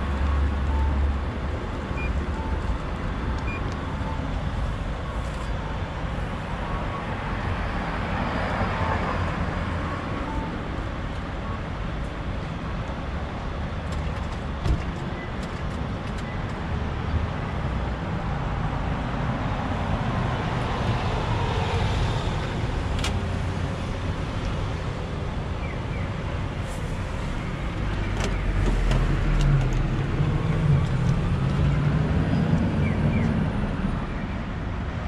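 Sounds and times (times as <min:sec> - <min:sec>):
cars passing: 0:06.0 - 0:11.1, 0:16.7 - 0:35.0.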